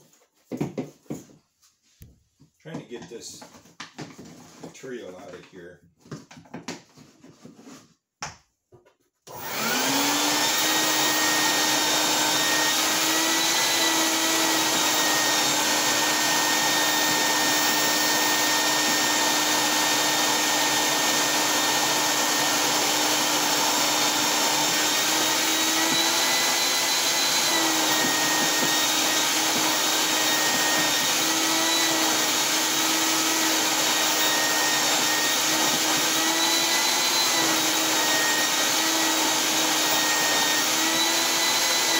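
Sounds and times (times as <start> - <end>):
shop vacuum running: 9.3 - 41.9.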